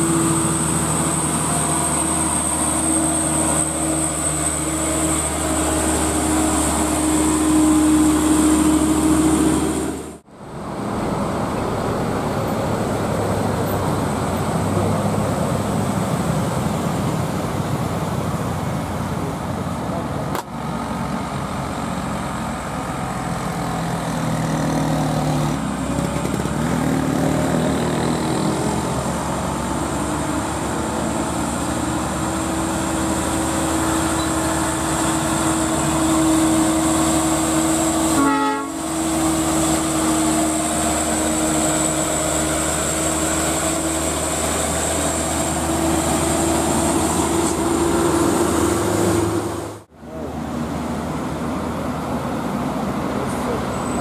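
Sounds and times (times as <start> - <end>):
diesel trucks labouring uphill: 0.0 - 54.0.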